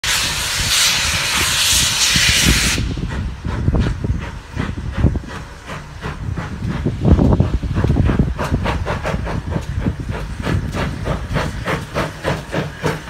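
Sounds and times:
loud hiss of escaping steam: 0:00.0 - 0:13.0
steam locomotive exhaust chuffs: 0:00.0 - 0:13.0.

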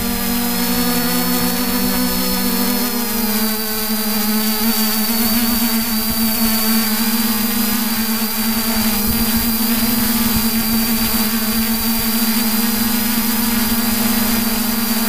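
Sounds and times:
drone propellers humming: 0:00.0 - 0:15.0.

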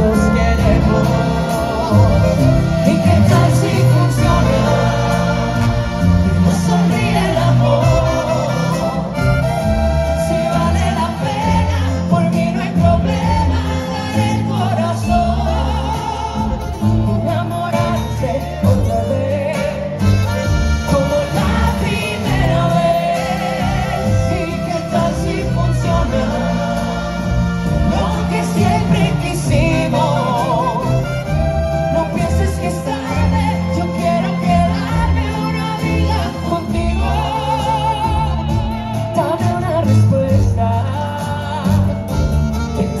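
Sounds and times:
woman singing: 0:00.0 - 0:05.4, 0:10.3 - 0:20.0, 0:27.9 - 0:31.1, 0:31.9 - 0:42.0
mariachi band playing live: 0:00.0 - 0:43.0.

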